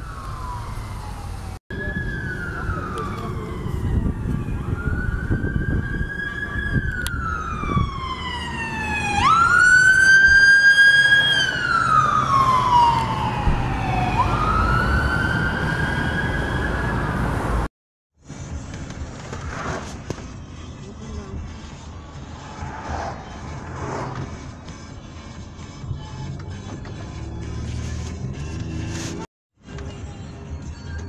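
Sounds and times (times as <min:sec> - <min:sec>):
fire truck siren wailing: 0:00.0 - 0:17.7
engine and traffic rumble: 0:00.0 - 0:31.0.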